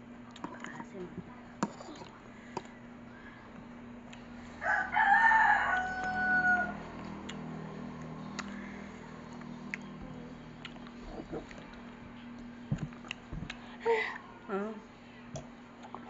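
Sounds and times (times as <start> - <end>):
rooster crowing: 4.6 - 7.0.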